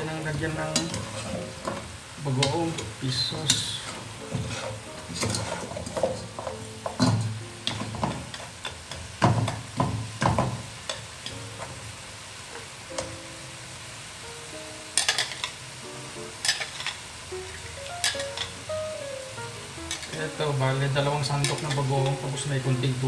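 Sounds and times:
meat sizzling: 0:00.0 - 0:23.0
metal turner scraping a pot: 0:00.7 - 0:01.8, 0:03.5 - 0:06.5, 0:19.9 - 0:20.2.

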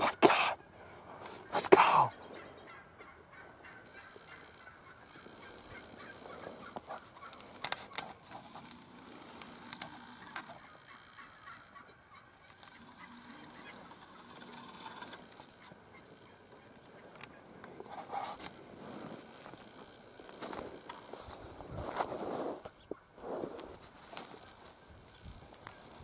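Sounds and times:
turkey gobbling: 0:00.1 - 0:08.2, 0:10.1 - 0:17.9, 0:20.8 - 0:21.2.

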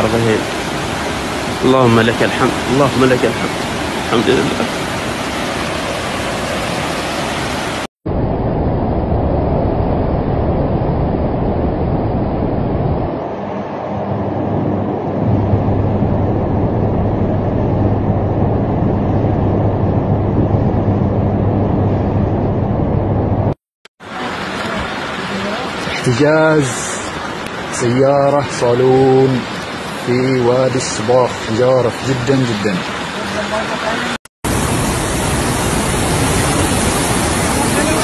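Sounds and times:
floodwater rushing: 0:00.0 - 0:07.9, 0:24.0 - 0:38.0
wind buffeting microphone: 0:00.5 - 0:23.6
low steady hum: 0:08.1 - 0:23.6.

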